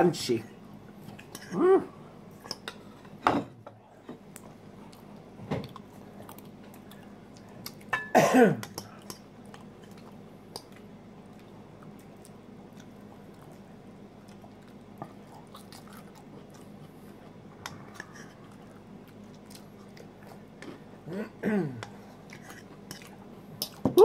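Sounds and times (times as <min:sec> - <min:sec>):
person clearing throat: 0:08.1 - 0:08.7, 0:21.1 - 0:21.9
person chewing crunchy food: 0:08.6 - 0:21.1.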